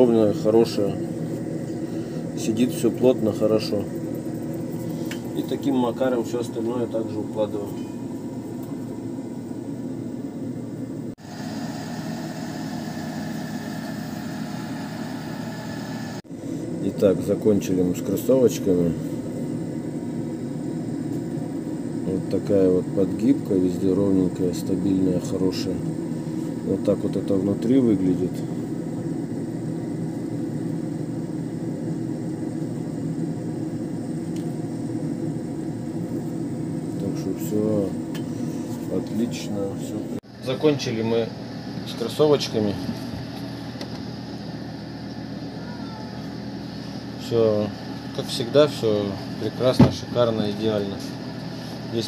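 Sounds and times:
workshop machine humming: 0:00.0 - 0:52.0.

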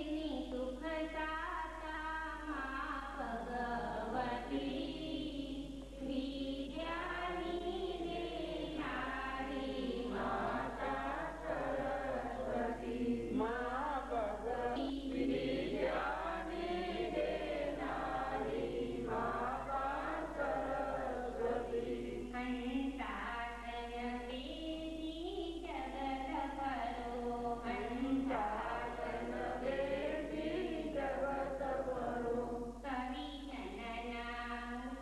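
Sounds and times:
steady low hum: 0:00.0 - 0:35.0
group of voices singing: 0:03.2 - 0:23.4, 0:26.6 - 0:33.0.

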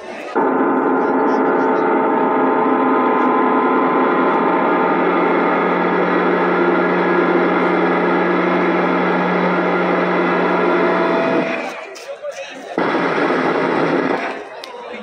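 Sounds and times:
gong-like drone: 0:00.4 - 0:11.7.

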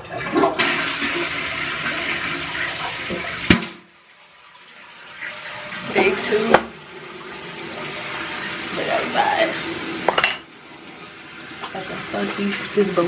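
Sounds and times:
toilet flushing: 0:00.0 - 0:13.0
toilet click: 0:06.5 - 0:06.8.

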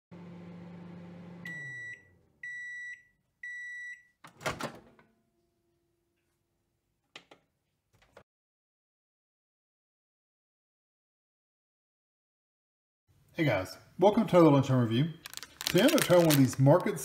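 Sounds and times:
microwave oven humming: 0:00.1 - 0:02.6
microwave beeps: 0:01.2 - 0:04.2.

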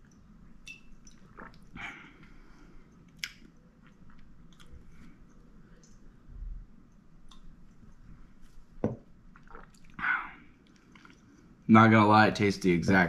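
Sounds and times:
person sipping and swallowing: 0:01.0 - 0:06.0, 0:09.3 - 0:11.6.

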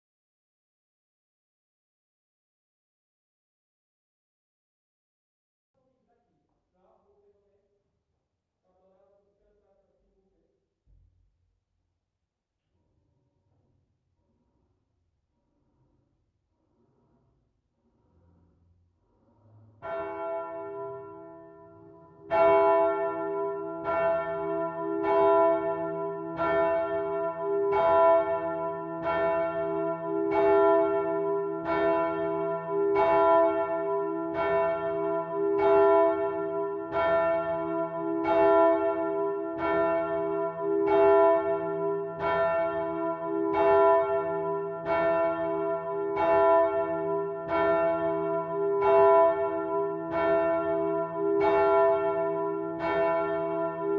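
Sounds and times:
church bell ringing: 0:19.8 - 0:53.9.

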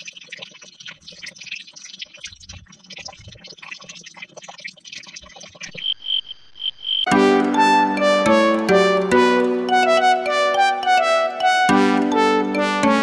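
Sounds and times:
frogs and insects croaking: 0:04.9 - 0:07.1
high pulsing insect chirp: 0:05.7 - 0:07.1.

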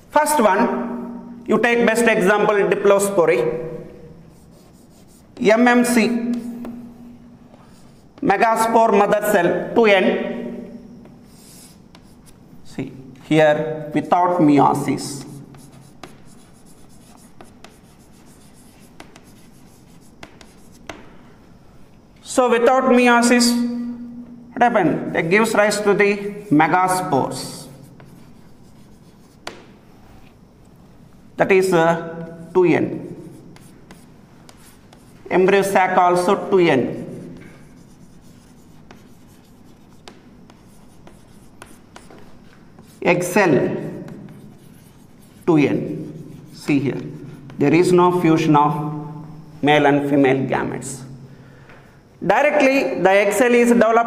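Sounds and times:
chalk scratching on chalkboard: 0:04.2 - 0:06.9, 0:07.5 - 0:08.7, 0:11.0 - 0:12.5, 0:14.7 - 0:21.1, 0:25.7 - 0:30.4, 0:32.2 - 0:47.7
chalk tapping on board: 0:04.4 - 0:05.5, 0:06.1 - 0:06.9, 0:11.0 - 0:12.4, 0:15.0 - 0:21.2, 0:27.4 - 0:29.8, 0:33.1 - 0:35.3, 0:36.9 - 0:43.0, 0:43.8 - 0:47.6.

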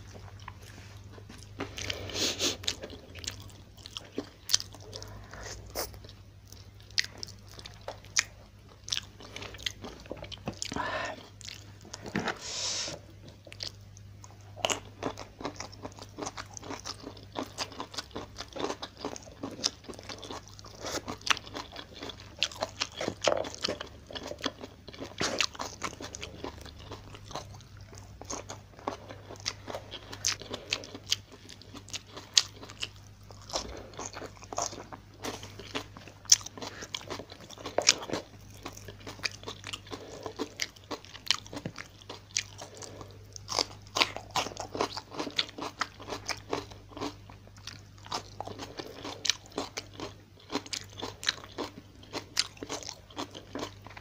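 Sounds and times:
crunching and chewing: 0:00.0 - 0:12.4, 0:13.0 - 0:54.0
faint low hum: 0:00.0 - 0:54.0
breathy hiss: 0:12.3 - 0:13.0.

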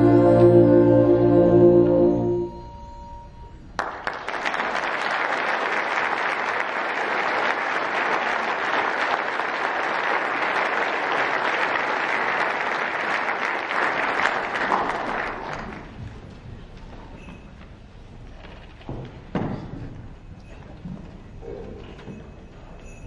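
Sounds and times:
concert band playing: 0:00.0 - 0:02.7
audience applauding: 0:03.8 - 0:16.0.

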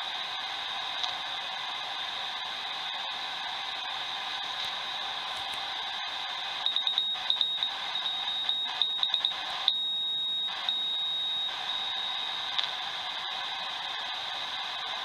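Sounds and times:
radio band hiss: 0:00.0 - 0:15.0
high-pitched morse code: 0:06.7 - 0:12.5.

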